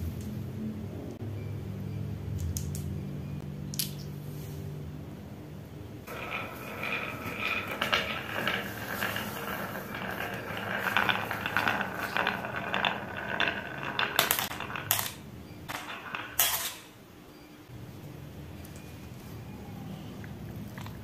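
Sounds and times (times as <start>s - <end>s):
marbles clicking into plastic bucket: 6.1s - 16.9s
marbles rolling on wooden track: 6.1s - 17.0s.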